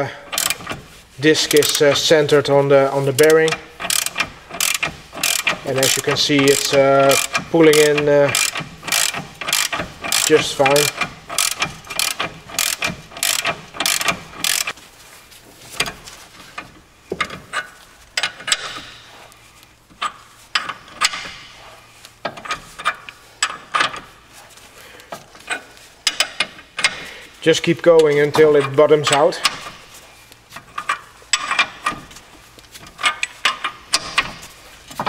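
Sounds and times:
ratchet wrench clicking: 0:00.3 - 0:00.8, 0:03.2 - 0:14.8.

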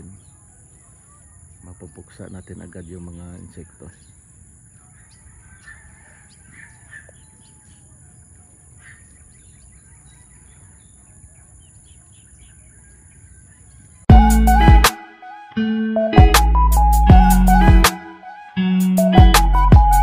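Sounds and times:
small birds chirping: 0:00.0 - 0:14.1.

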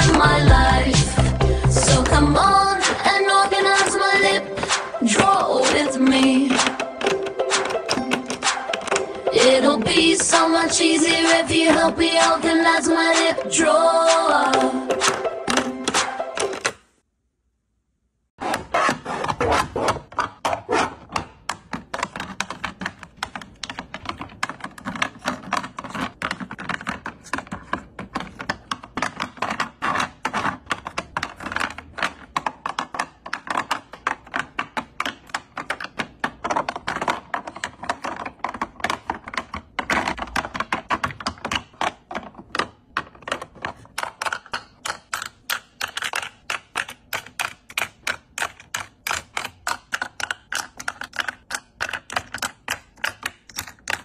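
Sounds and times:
plastic tubes clicking on acrylic: 0:20.1 - 0:54.0.

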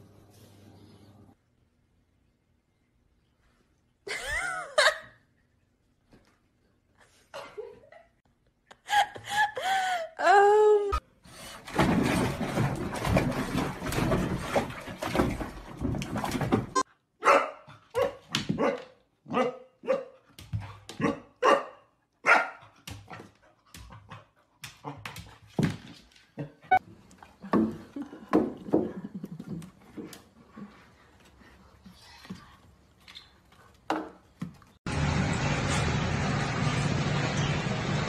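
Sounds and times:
puppy barking: 0:17.2 - 0:20.2, 0:21.0 - 0:22.6.

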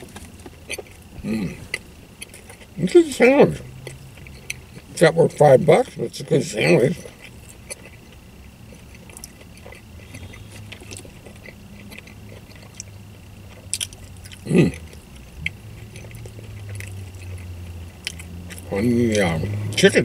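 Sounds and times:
man chewing: 0:00.0 - 0:06.0, 0:06.8 - 0:20.0
low steady hum: 0:00.0 - 0:20.0
man humming from throat: 0:01.2 - 0:01.7, 0:14.4 - 0:14.9.

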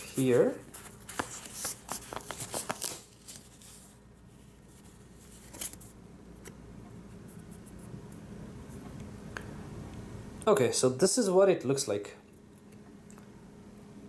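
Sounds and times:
paper rustling: 0:00.0 - 0:06.0
plastic card crackling off paper: 0:00.7 - 0:03.6.

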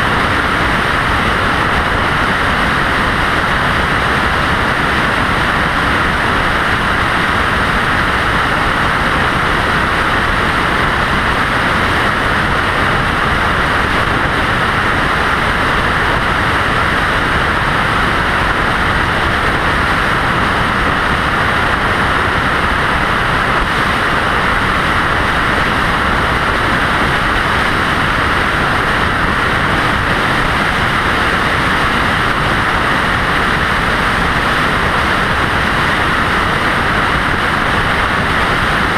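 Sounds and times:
vehicle road and wind noise: 0:00.0 - 0:38.9.

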